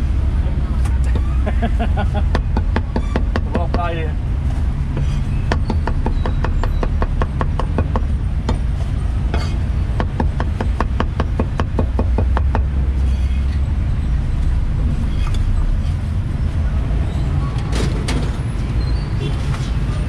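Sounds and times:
street traffic rumble: 0:00.0 - 0:20.0
cleaver chopping on wooden board: 0:05.5 - 0:08.6.

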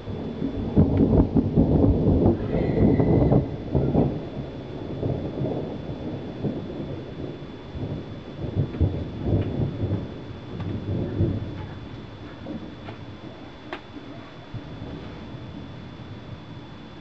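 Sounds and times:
thunder rumbling: 0:00.0 - 0:17.0.

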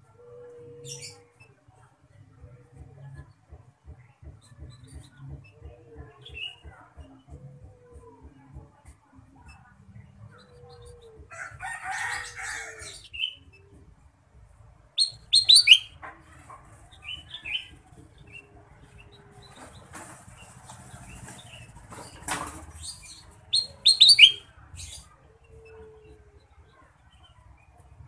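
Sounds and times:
bird chirping: 0:15.0 - 0:16.0, 0:16.9 - 0:27.8.

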